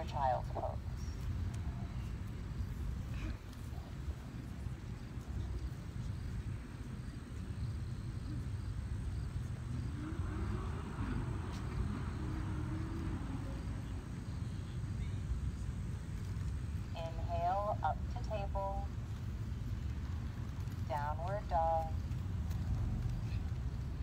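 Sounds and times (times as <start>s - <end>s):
faint wavering distant tones: 0.0s - 19.0s
low outdoor rumble: 0.0s - 24.0s.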